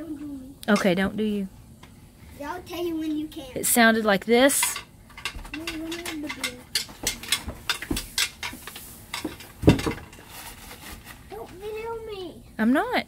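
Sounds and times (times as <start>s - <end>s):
antlers clacking together: 4.6s - 8.6s.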